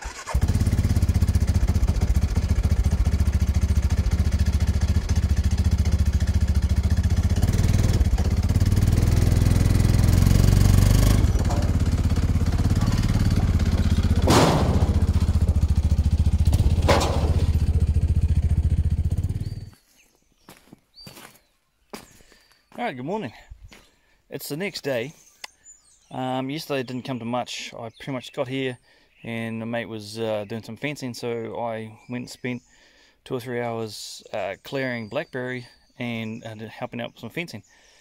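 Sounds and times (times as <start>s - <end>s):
vehicle engine running: 0.0s - 19.7s.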